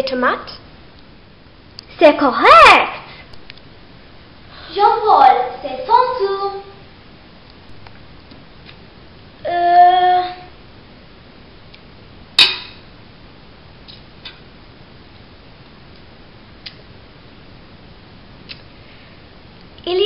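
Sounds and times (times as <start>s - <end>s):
metal utensil clinking on pot: 12.4s - 12.8s.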